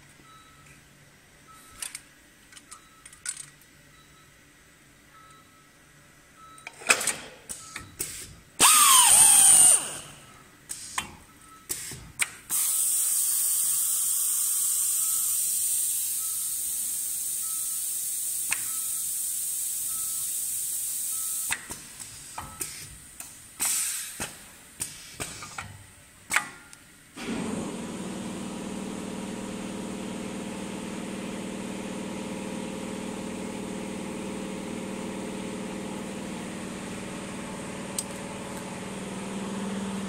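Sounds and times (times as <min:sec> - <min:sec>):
faint repeating beep: 0:00.2 - 0:00.8, 0:01.5 - 0:01.8, 0:02.7 - 0:03.2, 0:03.9 - 0:04.4, 0:05.1 - 0:05.8, 0:06.4 - 0:06.7, 0:11.3 - 0:11.7, 0:15.0 - 0:15.4, 0:16.2 - 0:16.6, 0:17.4 - 0:17.8, 0:18.7 - 0:19.1, 0:19.9 - 0:20.2, 0:21.1 - 0:21.5
motor whirr winding down: 0:08.6 - 0:10.2.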